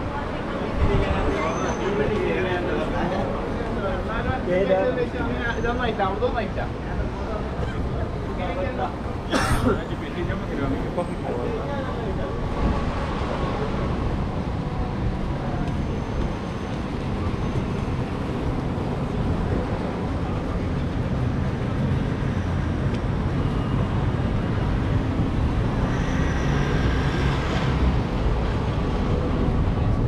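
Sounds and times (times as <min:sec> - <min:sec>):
cars passing rumble: 0:00.0 - 0:30.0
bus engine: 0:06.5 - 0:30.0.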